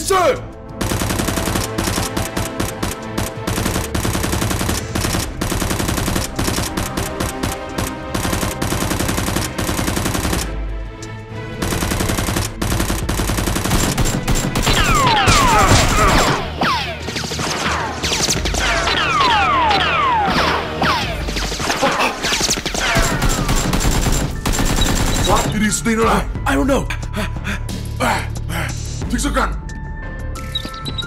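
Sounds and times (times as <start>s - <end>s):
automatic gunfire sound effects: 0.8s - 10.5s, 11.6s - 25.6s.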